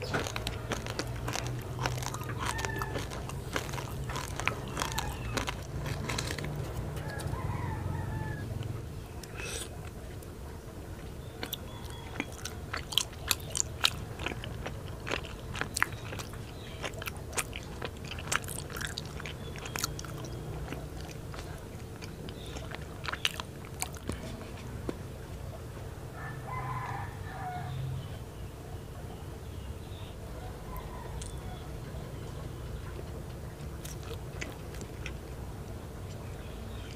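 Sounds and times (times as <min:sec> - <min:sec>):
chewing with mouth clicks: 0:00.0 - 0:07.5, 0:08.6 - 0:10.3, 0:11.0 - 0:25.0, 0:30.8 - 0:31.5, 0:32.8 - 0:36.9
rooster crowing: 0:01.9 - 0:08.7, 0:26.1 - 0:28.0, 0:30.4 - 0:31.9.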